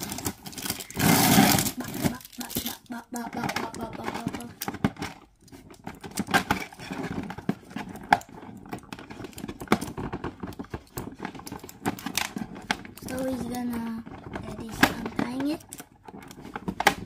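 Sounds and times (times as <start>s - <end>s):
cardboard rustling: 0.0s - 17.0s
clicks and scrapes of plastic: 0.0s - 17.0s.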